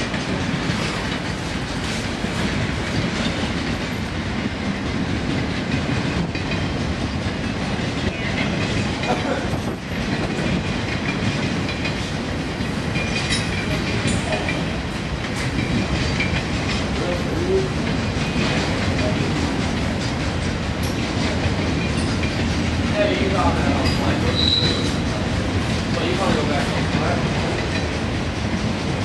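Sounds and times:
diesel locomotives passing: 0:00.0 - 0:29.0
train wheels rumbling on rails: 0:00.0 - 0:29.0
thin wheel squeal: 0:24.3 - 0:24.9.

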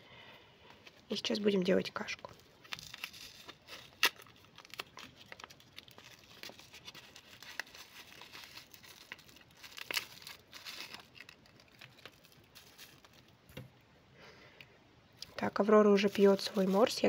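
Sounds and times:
plastic bag rustling: 0:02.3 - 0:13.7, 0:15.8 - 0:17.0
cardboard box crinkling: 0:02.6 - 0:13.4, 0:16.0 - 0:17.0.

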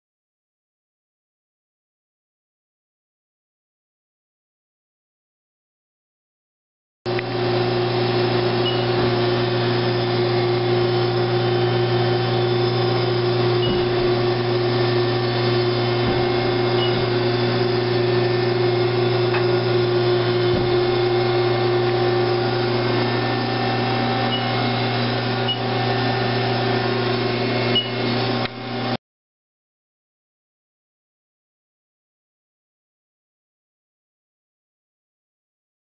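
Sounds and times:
lathe mechanical hum: 0:07.1 - 0:29.0.

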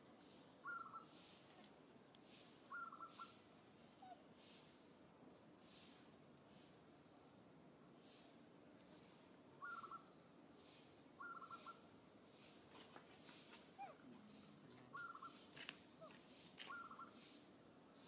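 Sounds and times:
trilled animal chirp: 0:00.6 - 0:01.2, 0:02.7 - 0:03.4, 0:09.6 - 0:10.1, 0:11.2 - 0:11.8, 0:13.8 - 0:17.3.

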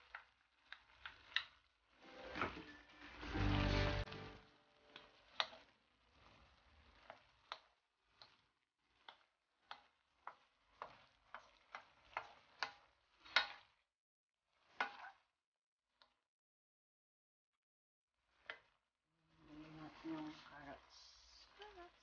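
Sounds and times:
wooden spoon scraping metal wok: 0:00.0 - 0:13.8, 0:14.5 - 0:15.3, 0:19.4 - 0:22.0.

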